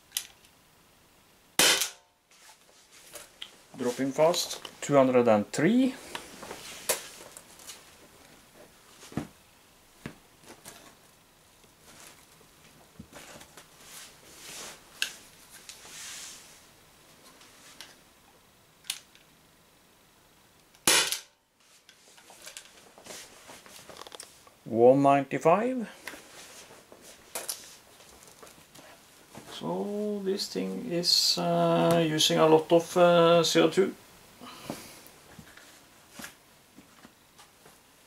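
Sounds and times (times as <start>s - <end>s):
air pistol shot: 1.6s - 2.1s, 20.8s - 21.3s.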